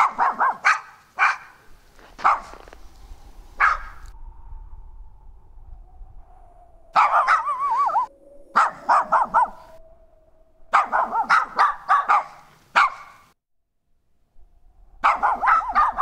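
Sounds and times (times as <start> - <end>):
dog yelp: 0.0 - 1.6, 2.2 - 2.6, 7.0 - 9.8, 10.7 - 13.2, 15.0 - 16.0
small dog barking: 0.0 - 2.7, 3.6 - 4.0, 7.0 - 9.8, 10.7 - 13.2, 15.0 - 16.0.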